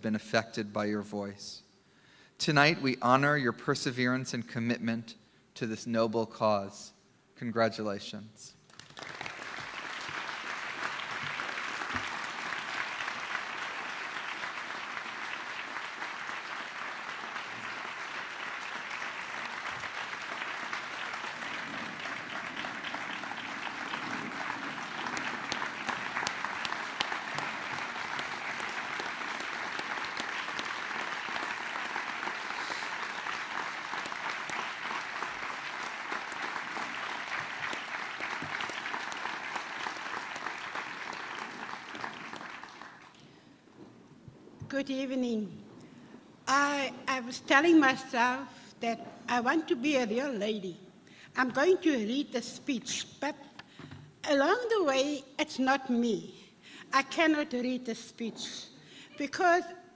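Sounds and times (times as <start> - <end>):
audience applauding: 8.7 - 43.5.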